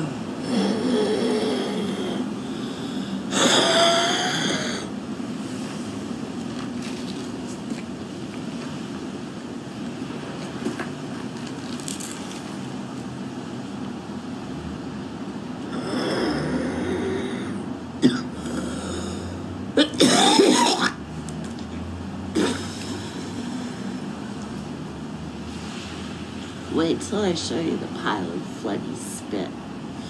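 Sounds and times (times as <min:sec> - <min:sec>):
low background noise: 0:00.0 - 0:30.0
woman coughing: 0:18.0 - 0:18.3, 0:19.8 - 0:21.0, 0:22.4 - 0:22.8.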